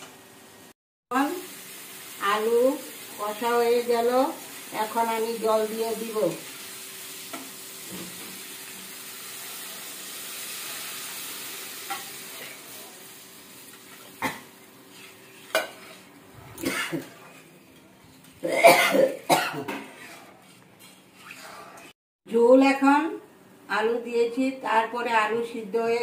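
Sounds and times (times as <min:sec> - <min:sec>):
water sizzling in hot pan: 0:01.1 - 0:16.2.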